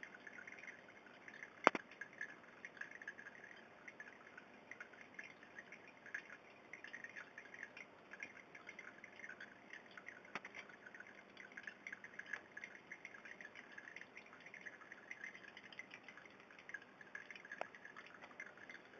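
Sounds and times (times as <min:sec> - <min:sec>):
aquarium water bubbling: 0:00.0 - 0:18.9
sharp clicks: 0:01.6 - 0:02.0.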